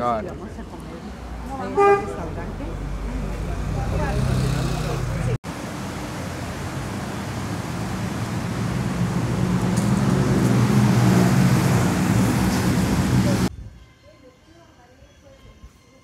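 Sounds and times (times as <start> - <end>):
wind on the microphone: 13.3 - 13.9.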